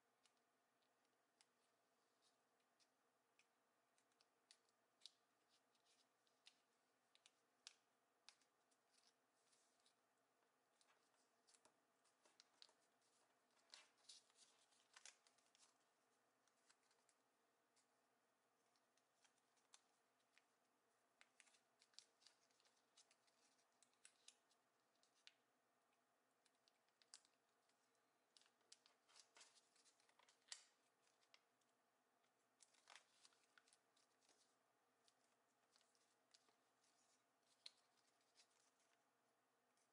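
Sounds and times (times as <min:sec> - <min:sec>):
paper crackling and rustling: 0:10.8 - 0:15.9.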